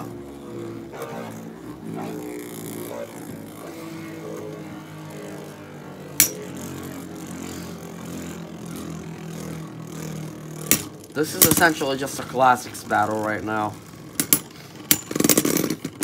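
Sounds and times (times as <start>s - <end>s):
spinning tops whirring: 0.0s - 16.0s
tops clacking together: 10.6s - 11.8s, 14.1s - 16.0s.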